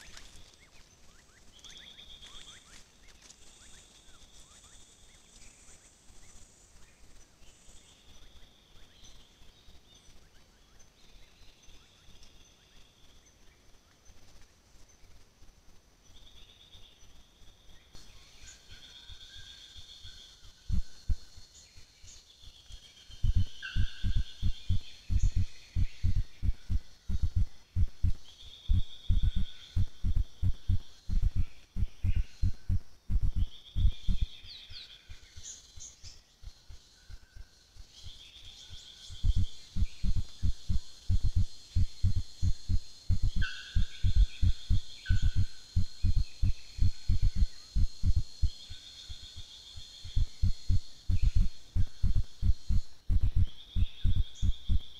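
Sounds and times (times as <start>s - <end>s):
insects buzzing: 0.0s - 54.9s
low rumbling hiss: 0.0s - 54.9s
dull low thumps: 23.2s - 34.3s, 39.2s - 48.6s, 50.1s - 54.9s
short bird chirps: 39.1s - 48.6s.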